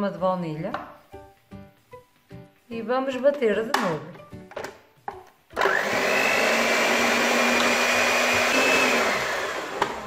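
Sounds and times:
electric mixer whine: 5.6 - 10.0.

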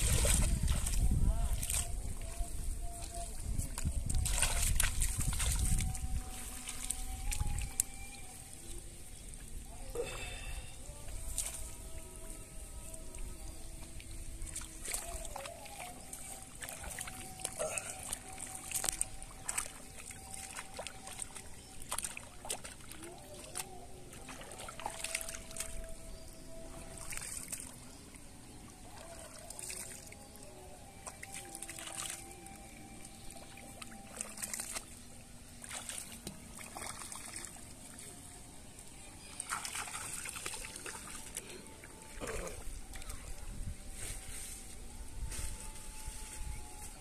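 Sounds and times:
water sloshing and splashing: 0.0 - 9.7, 13.1 - 44.3
small sharp splashes: 4.1 - 7.9, 14.4 - 25.9, 26.8 - 27.8, 31.0 - 32.3, 33.3 - 35.0, 35.6 - 38.0, 39.3 - 41.4.

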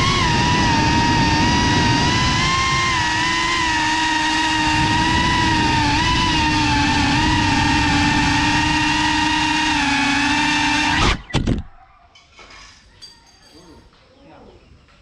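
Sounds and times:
drone motors whining: 0.0 - 11.7.

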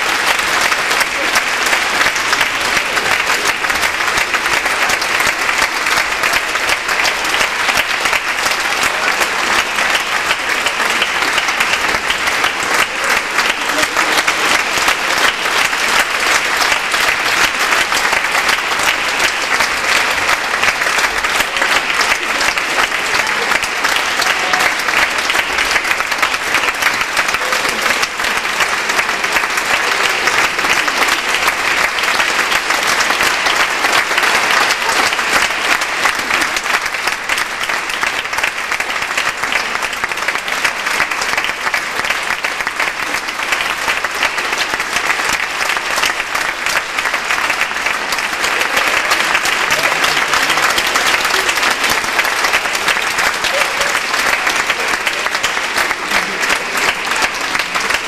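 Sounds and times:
audience applauding: 0.0 - 58.0.

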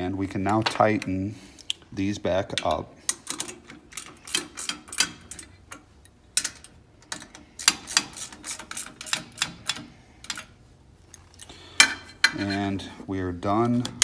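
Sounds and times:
wrench clicking on metal bolts: 2.5 - 10.5.

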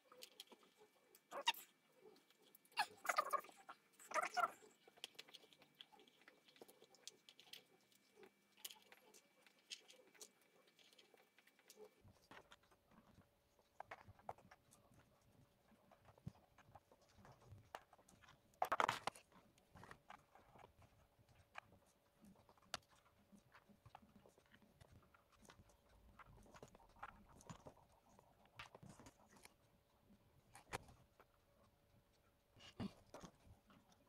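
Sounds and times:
small pieces clicking and tapping: 0.1 - 15.0, 16.0 - 21.7.

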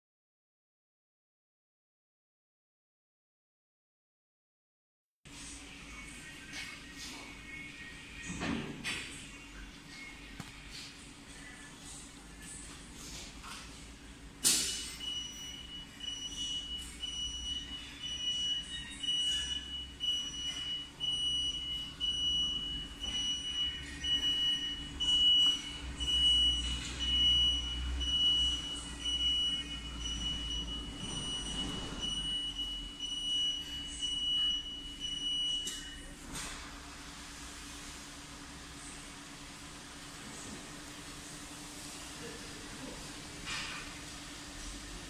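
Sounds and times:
electronic buzzer pulsing beep: 14.7 - 36.1.

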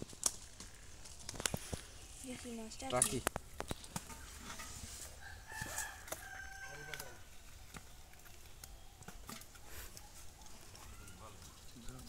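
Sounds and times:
rooster crowing: 5.1 - 7.3.

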